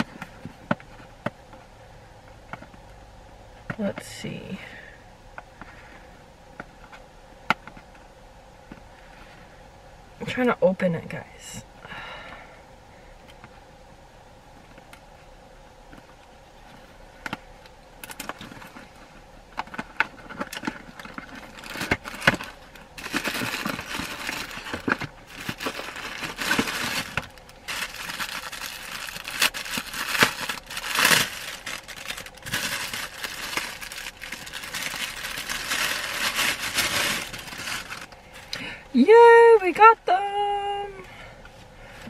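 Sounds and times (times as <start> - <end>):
plastic wrapping crinkling: 19.6 - 38.5.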